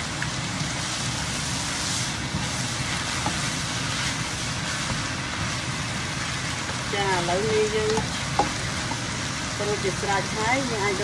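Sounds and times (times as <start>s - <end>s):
noodles sizzling in a pan: 0.0s - 11.0s.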